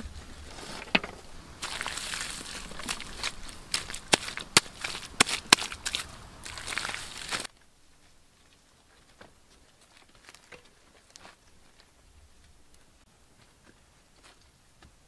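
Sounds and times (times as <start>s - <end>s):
soft bare footsteps: 0.0s - 15.0s
wet mud slaps and squelches: 1.6s - 7.5s.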